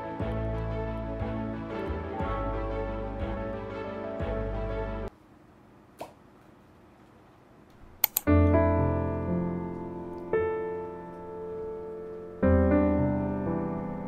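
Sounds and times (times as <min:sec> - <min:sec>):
soft piano music: 0:00.0 - 0:05.1, 0:08.3 - 0:14.0
sharp clicks: 0:08.0 - 0:08.3.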